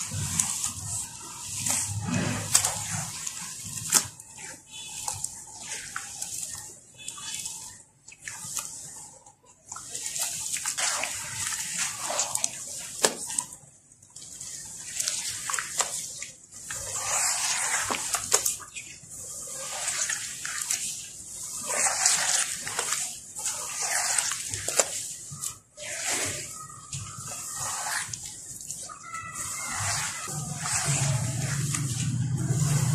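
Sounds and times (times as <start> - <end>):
hands squelching wet cement slurry: 0.0 - 32.9.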